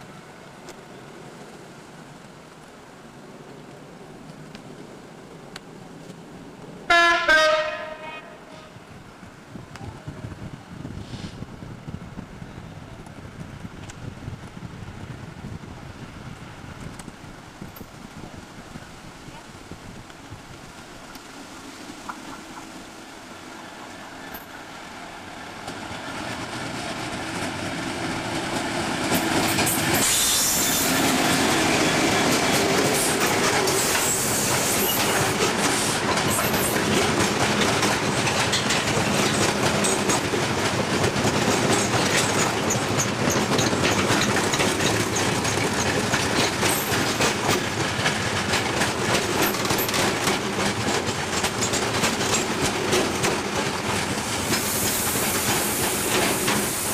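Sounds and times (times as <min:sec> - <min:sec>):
diesel locomotive passing: 0:00.0 - 0:56.9
wheels clattering over rail joints: 0:28.4 - 0:56.9.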